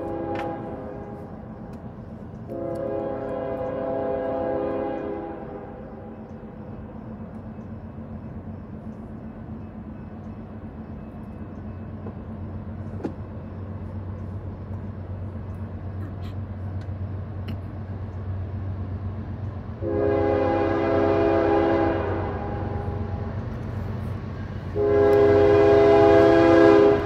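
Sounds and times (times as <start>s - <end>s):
locomotive air horn: 0.0s - 1.3s, 2.5s - 5.8s, 19.8s - 23.2s, 24.7s - 27.0s
locomotive engines running: 0.0s - 27.0s.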